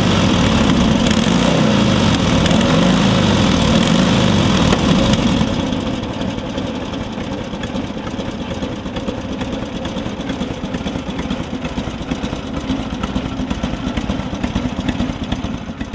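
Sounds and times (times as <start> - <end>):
motorcycle engine idling: 0.0 - 15.9.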